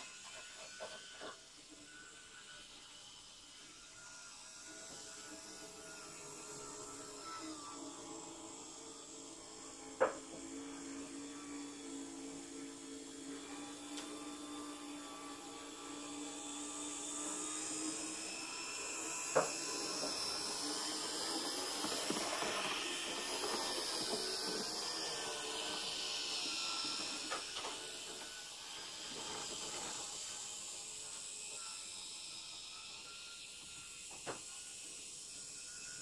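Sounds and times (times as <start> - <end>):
model train motor whirring: 0.0 - 36.0
wheels rolling on rails: 18.8 - 31.0.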